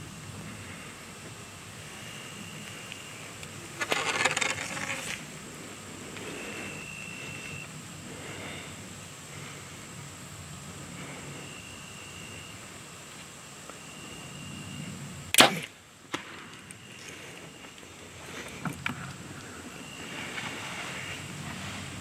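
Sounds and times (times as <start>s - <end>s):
faint cracks: 2.8s - 5.2s.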